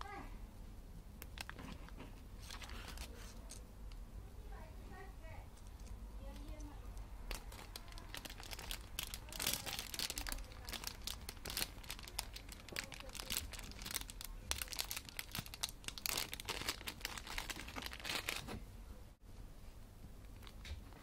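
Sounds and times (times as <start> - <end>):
plastic bags crinkling: 1.2 - 3.6, 5.6 - 18.6, 20.2 - 21.0.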